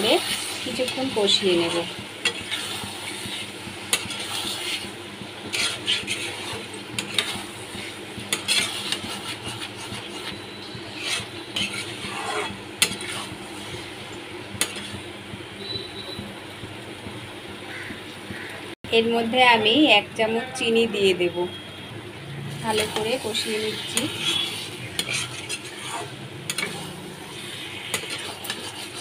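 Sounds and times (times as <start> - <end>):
spatula scraping metal pan: 0.0 - 13.9, 22.7 - 29.0
low sizzle: 0.0 - 29.0.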